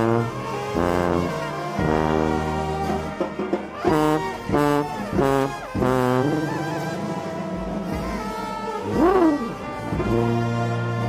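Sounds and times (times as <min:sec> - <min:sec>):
brass band playing: 0:00.0 - 0:11.0
punchy horn stabs: 0:00.0 - 0:11.0.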